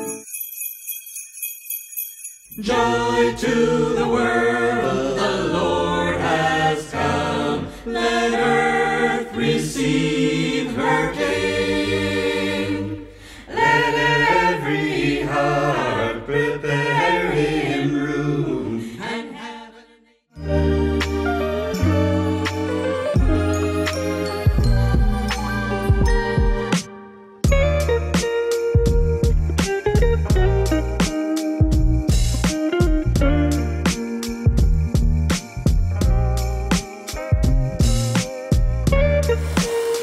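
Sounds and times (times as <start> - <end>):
a cappella group singing: 2.6 - 20.0.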